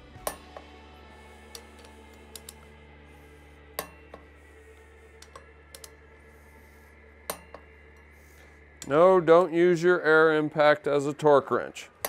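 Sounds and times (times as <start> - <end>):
steady low hum: 0.0 - 12.0
torque wrench clicking: 1.4 - 2.7, 5.2 - 6.0.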